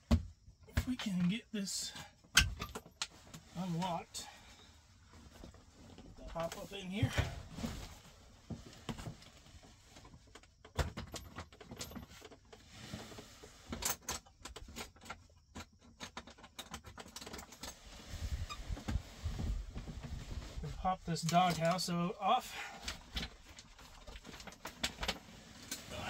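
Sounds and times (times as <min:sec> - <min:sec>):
jacket rustling: 0:05.1 - 0:09.9.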